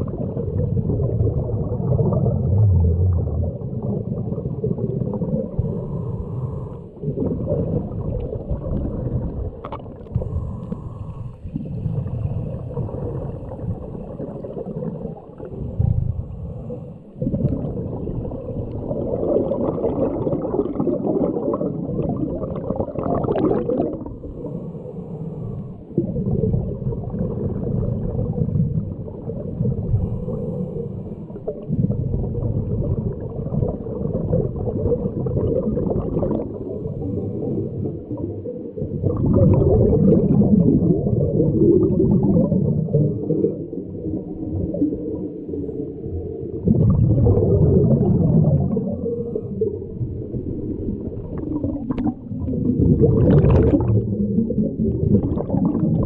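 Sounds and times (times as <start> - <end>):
gurgling exhaled bubbles: 0.0 - 56.0
scuba diver breathing underwater: 4.8 - 27.3, 29.5 - 32.1, 34.6 - 44.0, 46.8 - 56.0.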